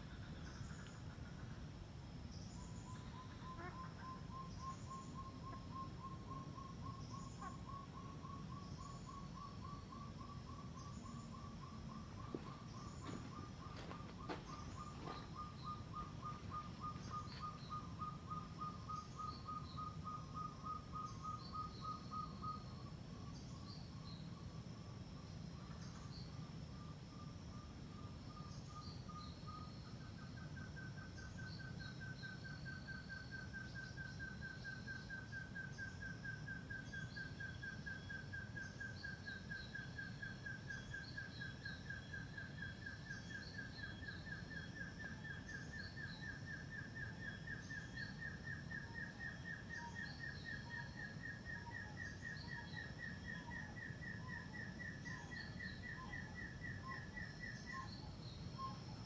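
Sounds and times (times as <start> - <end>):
partridge whistled calls: 2.6 - 22.8.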